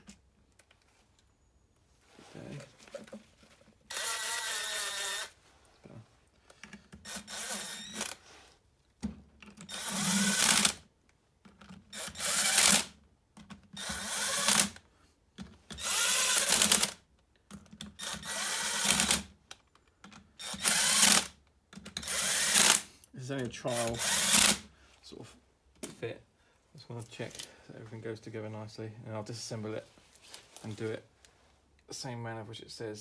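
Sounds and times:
cordless drill driving bolts: 3.9s - 5.4s, 6.9s - 8.2s, 9.6s - 10.8s, 11.9s - 13.0s, 13.8s - 14.8s, 15.7s - 17.0s, 17.9s - 19.3s, 20.4s - 22.9s, 23.7s - 24.7s.

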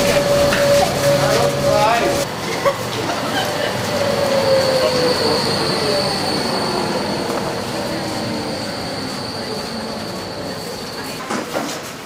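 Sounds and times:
high-pitched wheel squeal: 0.0s - 2.2s, 3.8s - 11.3s
tram running noise: 0.0s - 12.0s.

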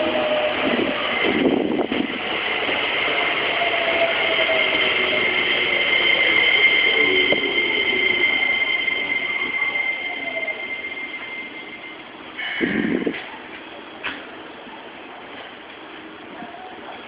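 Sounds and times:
high squeal: 0.0s - 13.2s.

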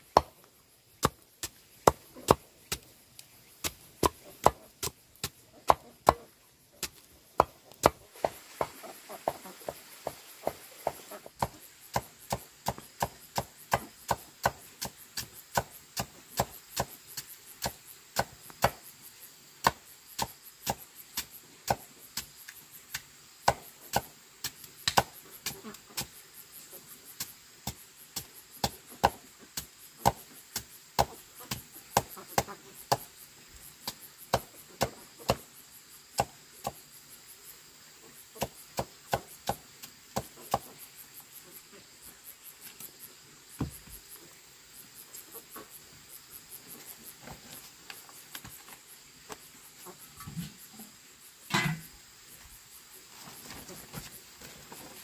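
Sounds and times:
knife chopping roots: 0.0s - 9.4s, 10.0s - 18.8s, 23.4s - 26.1s, 27.2s - 33.1s, 33.8s - 35.4s, 38.4s - 40.7s.

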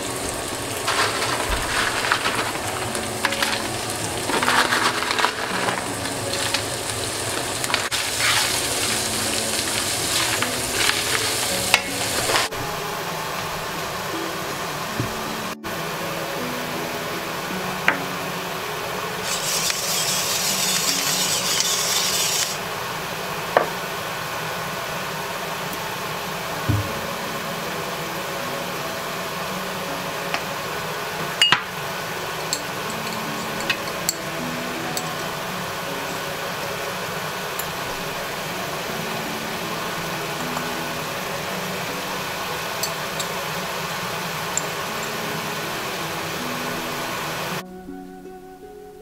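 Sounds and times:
loud hiss of seasoning: 0.0s - 47.6s
stir-fry sizzling in a pan: 0.0s - 47.6s
utensils clicking against pan: 19.3s - 22.6s.

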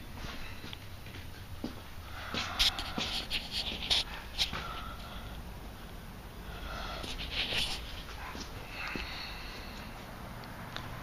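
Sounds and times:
person sniffing and breathing: 2.0s - 5.5s, 6.4s - 10.2s.

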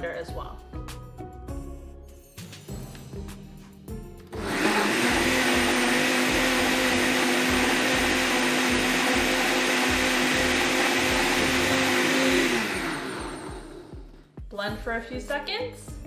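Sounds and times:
blender motor whirring: 4.4s - 14.2s.

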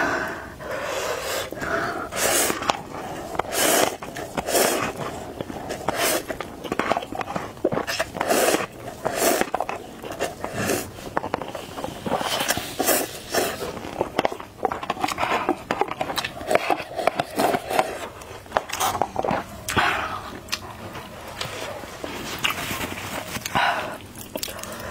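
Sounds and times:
slurping noodles: 0.6s - 24.9s
chewing and mouth clicks: 2.5s - 24.9s.

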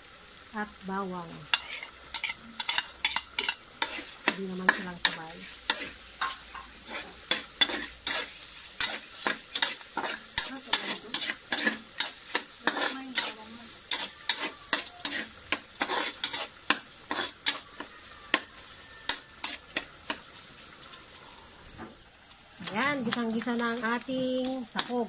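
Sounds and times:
food sizzling: 0.0s - 25.0s
metal spatula scraping frying pan: 1.5s - 20.4s.

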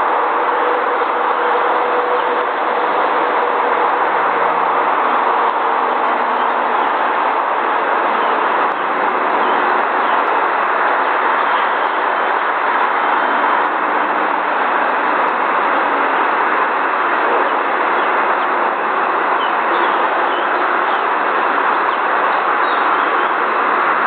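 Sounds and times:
loud rushing noise: 0.0s - 24.0s.

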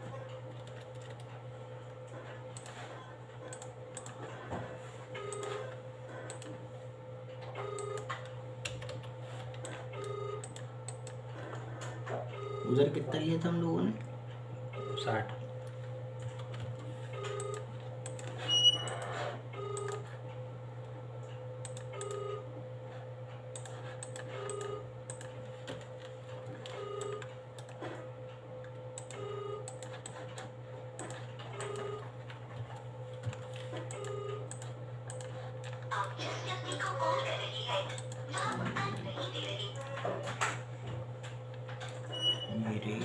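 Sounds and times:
steady low hum: 0.0s - 43.0s
keyboard and mouse clicks: 0.5s - 1.4s, 3.5s - 4.2s, 6.3s - 6.5s, 7.7s - 11.2s, 16.2s - 19.2s, 21.6s - 22.3s, 23.5s - 27.8s, 29.0s - 32.0s, 33.2s - 35.9s.

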